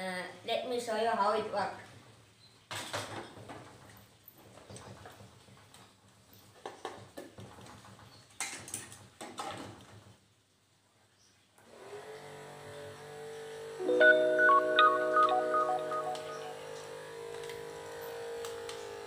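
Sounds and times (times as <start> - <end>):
steady tune: 13.8 - 16.9.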